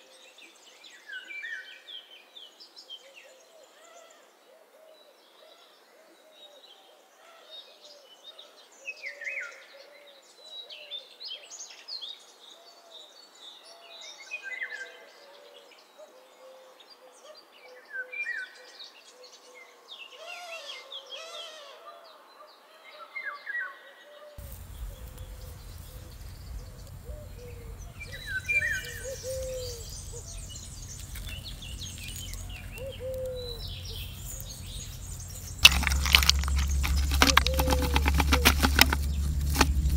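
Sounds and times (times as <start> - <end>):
low rumble of wind: 24.4 - 39.9
birds chirping and calling: 24.5 - 39.9.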